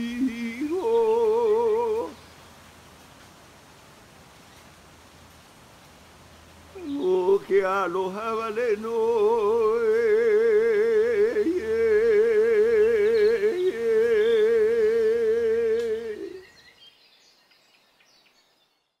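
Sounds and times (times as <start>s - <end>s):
man chanting with vibrato: 0.0s - 2.2s, 6.8s - 16.4s.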